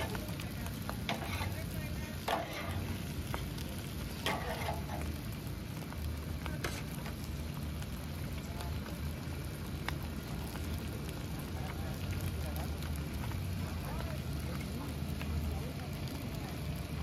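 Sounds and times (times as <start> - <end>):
meat sizzling on steel tray: 0.0 - 17.0
metal spatula scrapes and clicks: 1.0 - 2.9, 4.2 - 5.1.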